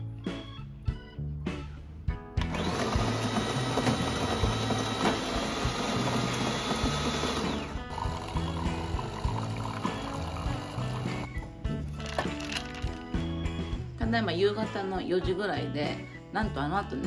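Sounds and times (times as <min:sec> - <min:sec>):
background music: 0:00.0 - 0:17.0
coffee grinder whirring: 0:02.4 - 0:11.4.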